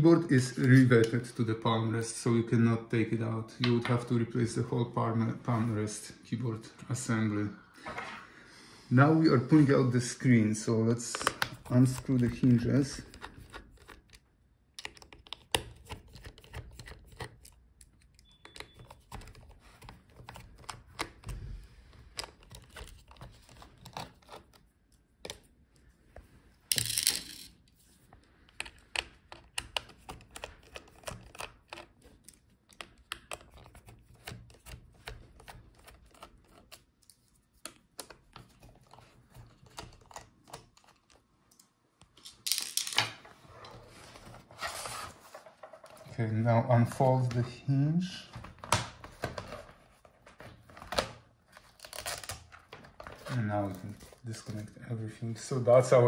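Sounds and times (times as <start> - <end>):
hands handling plastic case: 11.0 - 14.2, 48.2 - 54.8.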